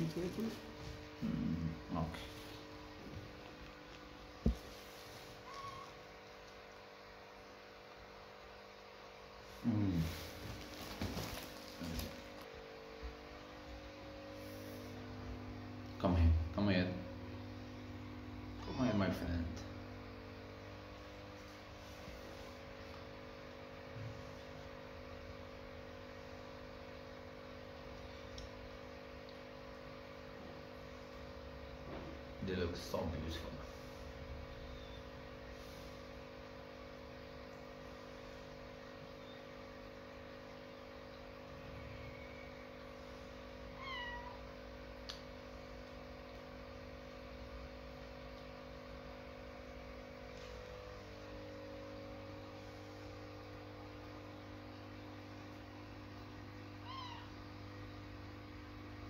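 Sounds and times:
faint steady tonal hum: 37.2s - 44.5s.

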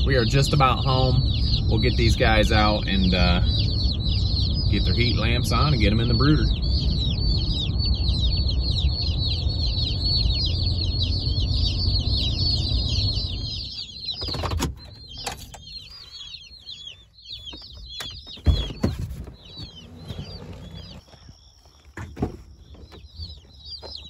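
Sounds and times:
chicks peeping: 0.0s - 24.0s
truck rumble: 0.0s - 24.0s.

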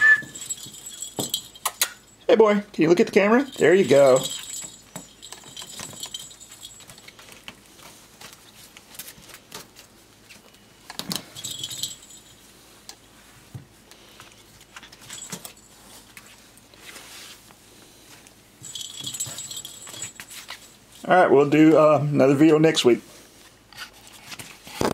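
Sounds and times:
light metallic jingling: 0.0s - 7.5s, 11.1s - 12.5s, 14.8s - 16.1s, 18.6s - 21.7s.

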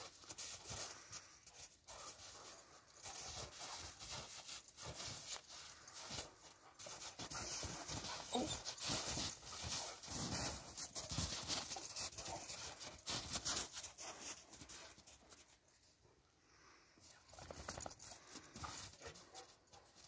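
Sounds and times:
dogs panting: 0.0s - 15.4s, 17.4s - 20.0s
dogs scuffling in snow: 0.0s - 15.6s.

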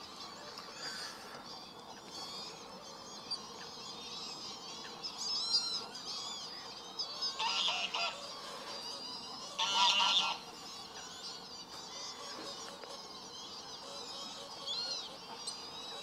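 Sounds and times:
high calls of small birds: 0.0s - 16.0s
geese honking: 7.2s - 8.8s, 9.5s - 10.6s.

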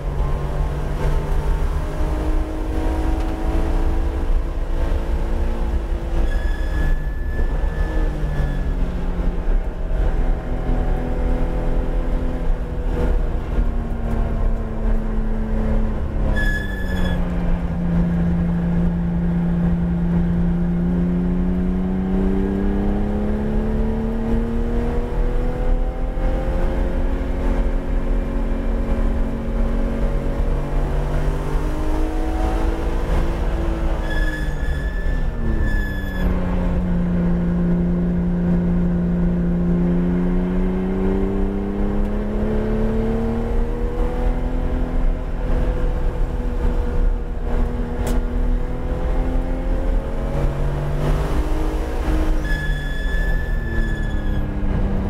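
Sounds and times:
car engine downshifting and accelerating: 0.0s - 55.0s.

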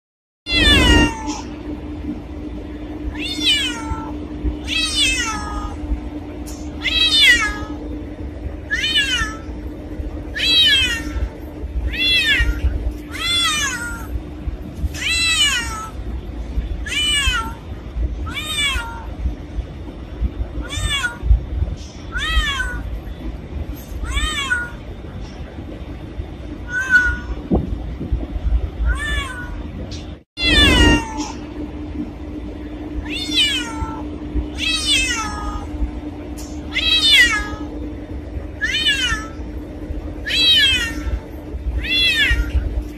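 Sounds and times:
cat meowing: 0.5s - 1.5s, 3.1s - 5.8s, 6.8s - 7.8s, 8.7s - 9.5s, 10.4s - 11.3s, 11.9s - 14.2s, 15.0s - 16.0s, 16.8s - 17.6s, 18.2s - 19.1s, 20.6s - 21.2s, 22.1s - 22.9s, 24.0s - 24.8s, 26.6s - 27.4s, 28.8s - 29.6s, 30.4s - 31.4s, 33.0s - 34.0s, 34.6s - 35.7s, 36.7s - 37.7s, 38.6s - 39.4s, 40.2s - 41.2s, 41.8s - 42.7s.

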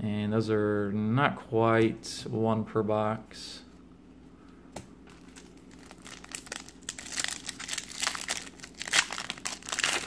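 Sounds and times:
foil wrapper crinkling: 5.1s - 10.0s.

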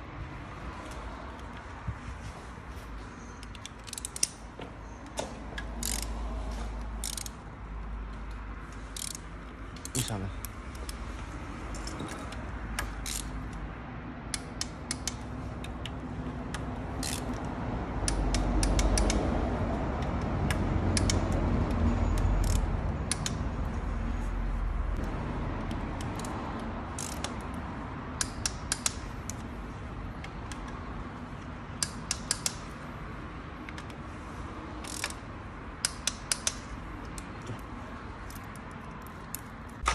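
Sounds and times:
ratchet wrench clicking: 3.3s - 6.3s, 7.0s - 7.5s, 8.3s - 11.0s, 11.7s - 13.6s, 14.3s - 19.4s, 20.0s - 23.4s, 25.6s - 27.6s, 28.2s - 29.5s, 31.4s - 32.9s, 34.8s - 39.9s.

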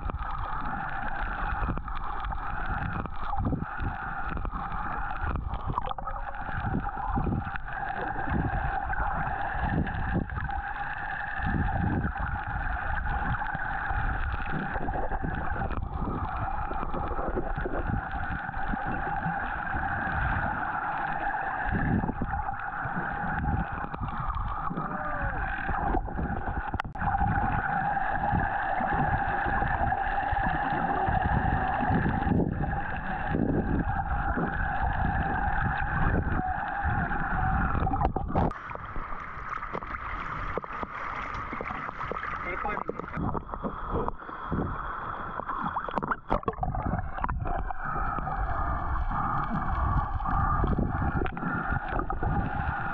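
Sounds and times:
boat engine hum underwater: 0.0s - 52.9s
rumble of moving water: 0.0s - 52.9s.

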